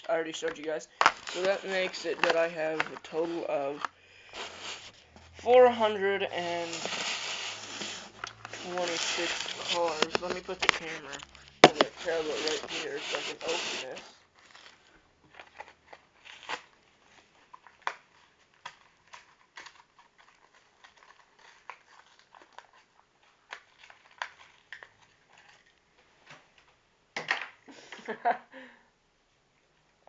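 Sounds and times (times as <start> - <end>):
plastic packaging crinkling: 0.1 - 25.8.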